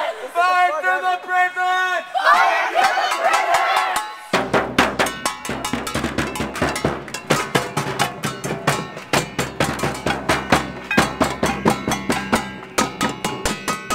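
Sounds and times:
drums beaten by hand: 0:03.1 - 0:13.9.

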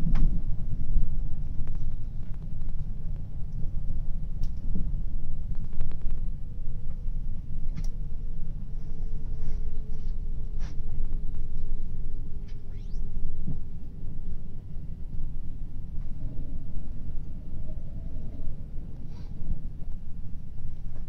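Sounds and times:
train wheels rumbling on rails: 0:00.0 - 0:12.6
faint hum dropping in pitch: 0:11.2 - 0:20.5.

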